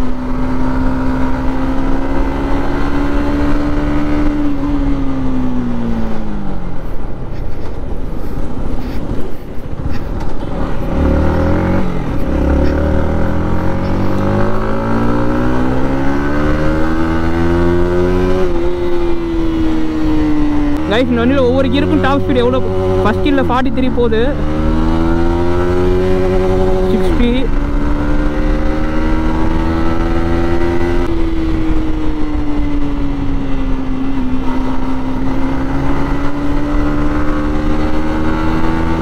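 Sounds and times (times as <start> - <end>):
motorcycle engine: 0.0 - 39.0.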